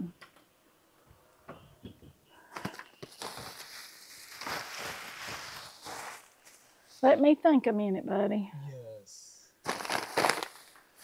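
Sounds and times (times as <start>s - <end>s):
rustling: 2.4s - 7.2s, 9.6s - 11.0s.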